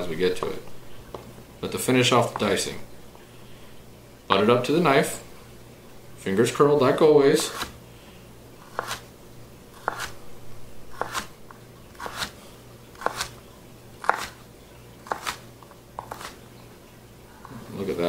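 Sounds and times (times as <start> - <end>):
knife dicing pepper on cutting board: 9.8 - 10.2, 10.9 - 11.3, 12.0 - 12.4, 13.0 - 13.4, 14.0 - 14.4, 15.0 - 15.4.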